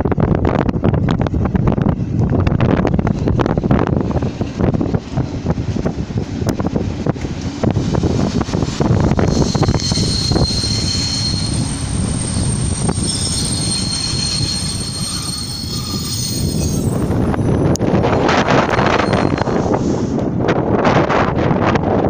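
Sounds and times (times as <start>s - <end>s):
low rumble of wheels on rails: 0.0s - 22.0s
train wheels and brakes squealing: 8.3s - 20.2s.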